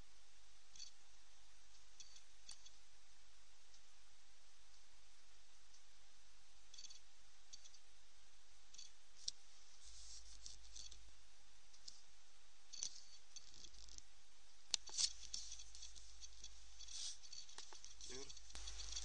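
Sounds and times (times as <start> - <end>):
faint steady hiss: 0.0 - 19.0.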